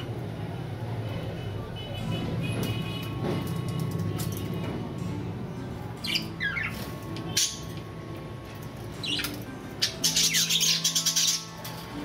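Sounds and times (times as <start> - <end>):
soft background music: 0.0 - 12.0
budgerigars chirping and squawking: 6.0 - 7.8, 9.0 - 11.8.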